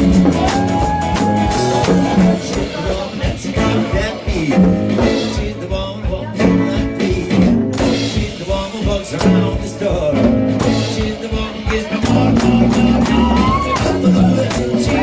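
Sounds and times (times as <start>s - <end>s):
live band playing: 0.0s - 15.0s
woman singing: 11.1s - 15.0s.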